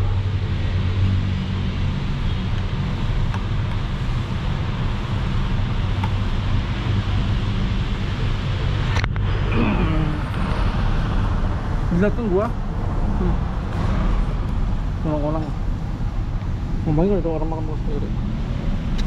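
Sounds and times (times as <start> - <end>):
low engine hum: 0.0 - 19.0
passing road traffic: 0.0 - 19.0.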